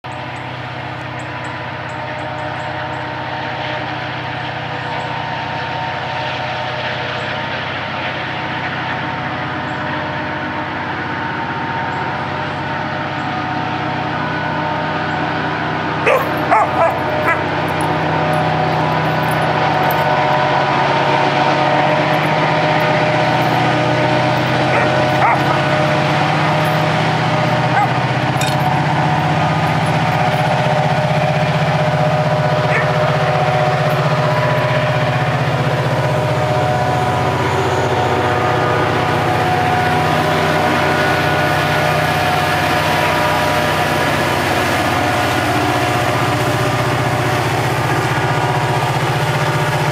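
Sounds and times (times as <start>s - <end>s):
diesel locomotive engine droning: 0.0s - 49.9s
dog barking: 16.0s - 20.0s, 24.4s - 26.8s, 27.4s - 28.1s, 32.6s - 33.1s.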